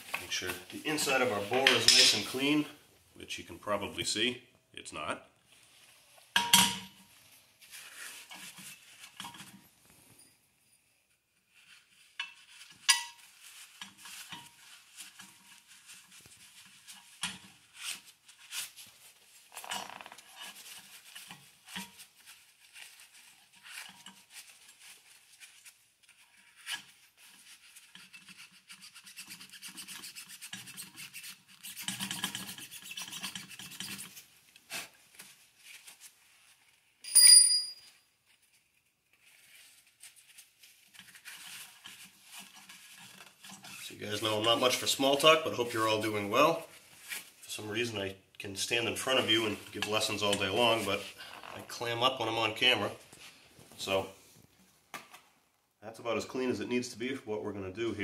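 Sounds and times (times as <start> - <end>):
sharp ringing metal clink: 37.0 - 38.0.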